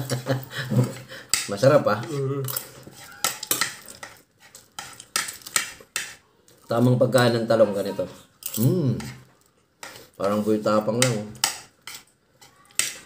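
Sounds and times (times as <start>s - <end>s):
spoons clinking against plates: 0.4s - 6.2s, 8.4s - 13.0s.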